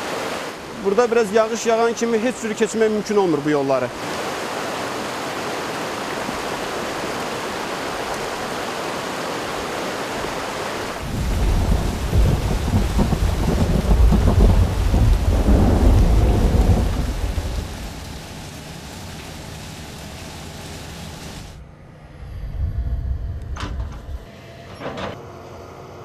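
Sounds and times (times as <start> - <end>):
floodwater rushing: 0.0 - 21.6
deep uneven rumble: 11.0 - 18.6, 22.0 - 24.2.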